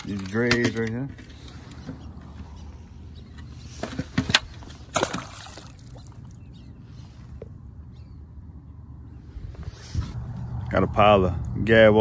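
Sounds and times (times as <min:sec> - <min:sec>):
decoys splashing into water: 0:04.9 - 0:06.4.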